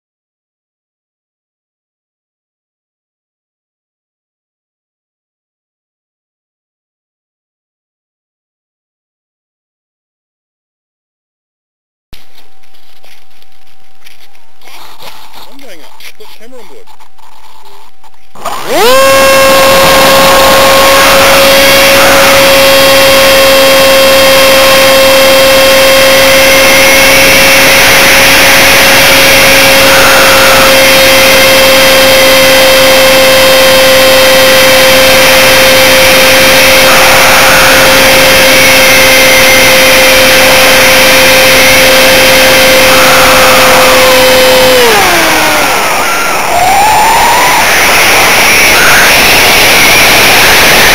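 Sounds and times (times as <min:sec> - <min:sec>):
model plane motor whining: 0:18.4 - 0:50.9
rushing air: 0:41.3 - 0:50.9.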